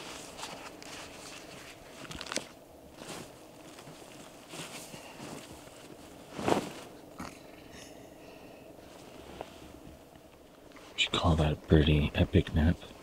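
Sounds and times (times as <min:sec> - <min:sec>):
clothing and gear rustling in grass: 0:00.0 - 0:07.2, 0:08.7 - 0:11.2.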